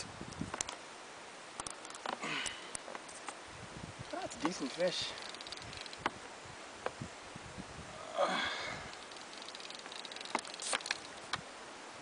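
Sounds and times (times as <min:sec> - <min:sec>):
handling clicks: 0:01.6 - 0:03.4.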